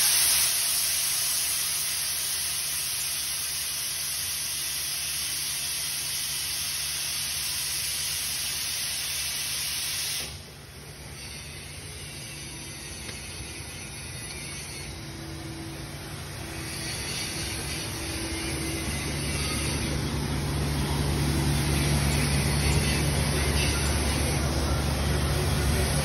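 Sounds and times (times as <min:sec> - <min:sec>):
loud steady hiss: 0:00.0 - 0:26.0
low hum: 0:10.3 - 0:26.0.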